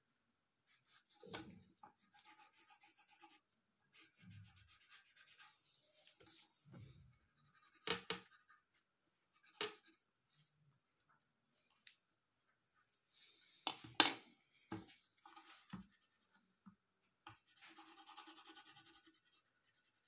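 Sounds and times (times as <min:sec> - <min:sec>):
pencil scratching on paper: 0:02.0 - 0:06.4, 0:07.1 - 0:10.1, 0:17.3 - 0:20.0.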